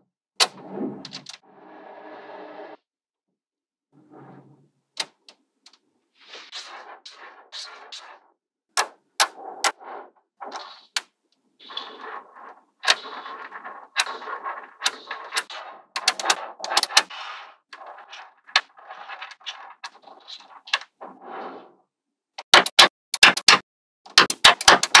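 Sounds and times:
magnetic balls rattling and rolling: 8.8 - 21.1.

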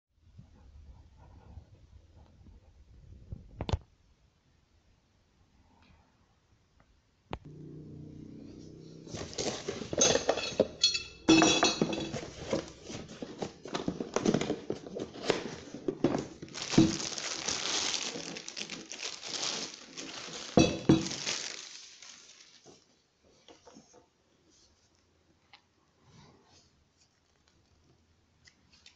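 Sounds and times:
plastic bag crinkling: 11.6 - 22.8.

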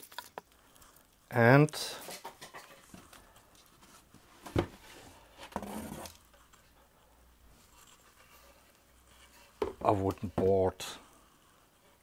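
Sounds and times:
wood scraping cardboard: 3.8 - 6.7.

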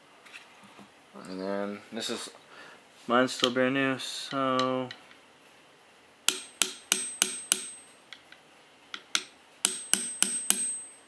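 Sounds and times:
small hammer tapping steel pin: 6.3 - 7.8, 8.9 - 10.9.

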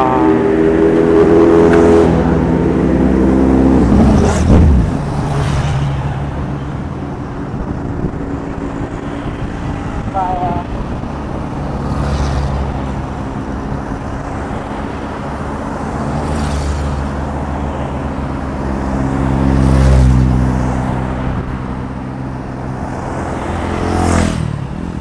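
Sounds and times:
vehicles passing on highway: 0.0 - 25.0.

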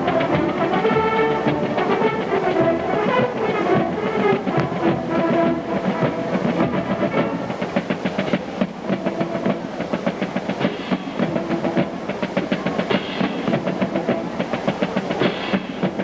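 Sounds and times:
horns playing held chords: 0.0 - 7.8
marching drum line beat: 0.0 - 16.0.

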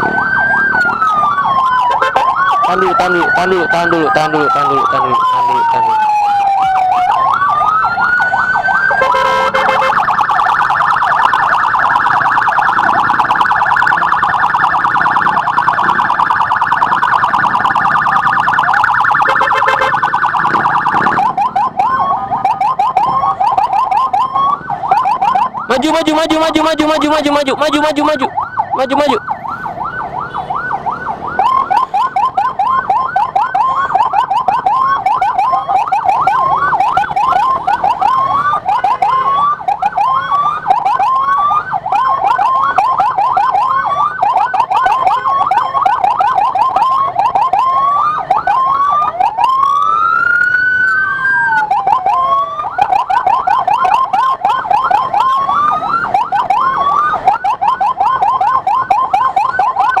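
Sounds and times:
electronic siren: 0.0 - 60.0.

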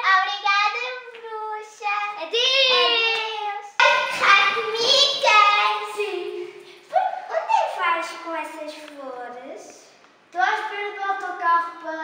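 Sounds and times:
child singing: 0.0 - 6.5.

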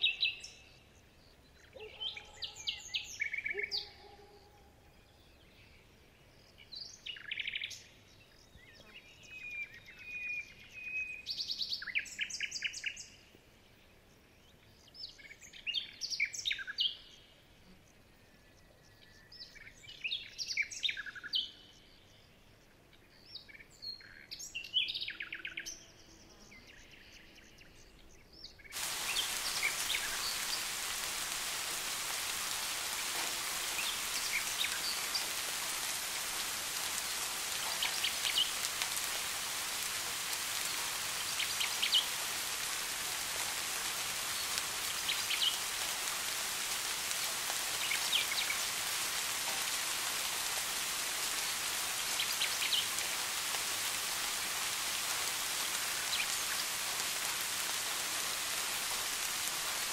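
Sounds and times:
steady rain: 0.0 - 7.8, 28.7 - 59.9
birds chirping: 0.0 - 25.6, 26.5 - 59.9.

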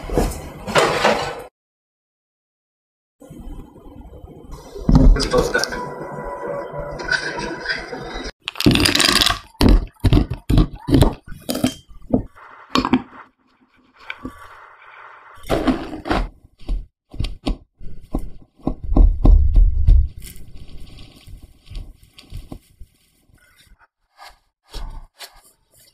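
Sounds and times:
scraper cutting flour mixture: 24.0 - 25.9.

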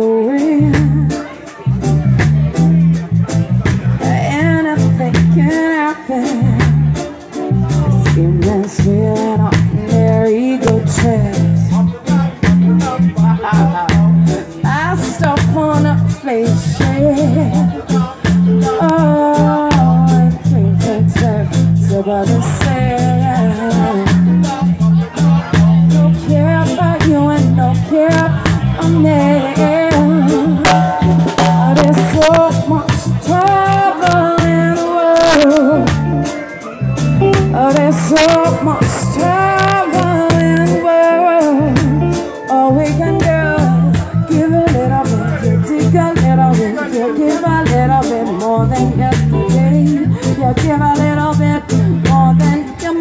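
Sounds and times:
woman singing: 0.0 - 1.7, 4.0 - 7.1, 7.9 - 12.0, 14.6 - 24.8, 25.7 - 36.6, 37.2 - 53.0
heavy bass guitar: 0.0 - 53.0
keyboard: 0.0 - 53.0
reggae band playing: 0.0 - 53.0
drum hits: 29.9 - 34.6.

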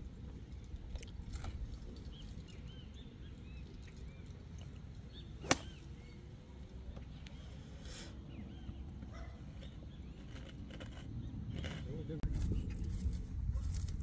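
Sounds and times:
birds chirping: 1.5 - 13.0
golf club striking ball: 5.4 - 6.1.

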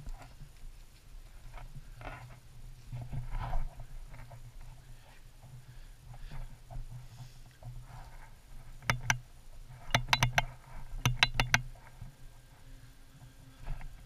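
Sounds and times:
clicks and knocks on rock: 9.8 - 11.7.

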